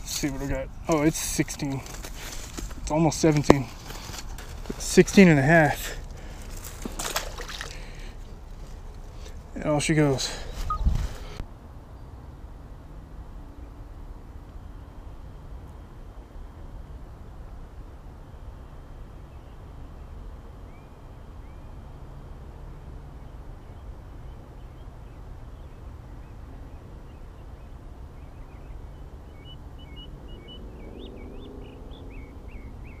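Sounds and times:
low outdoor rumble: 0:00.0 - 0:33.0
bird calls: 0:10.1 - 0:11.4, 0:24.6 - 0:33.0.

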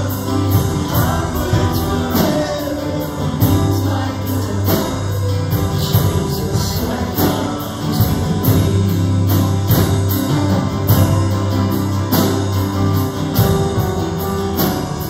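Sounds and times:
drum kit with cymbals: 0:00.0 - 0:15.0
strummed acoustic guitar: 0:00.0 - 0:15.0.

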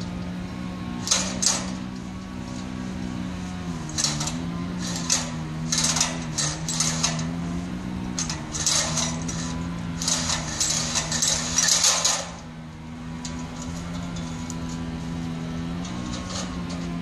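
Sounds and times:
engine running: 0:00.0 - 0:17.0.

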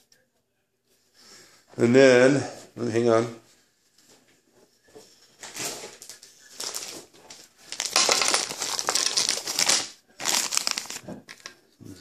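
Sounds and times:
plastic bag crinkling: 0:05.4 - 0:11.6.

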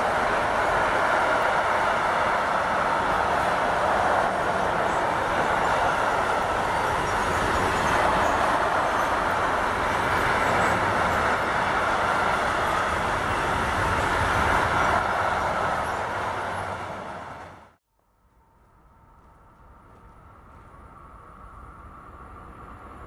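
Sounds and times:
freight train rumbling past: 0:00.0 - 0:17.8.

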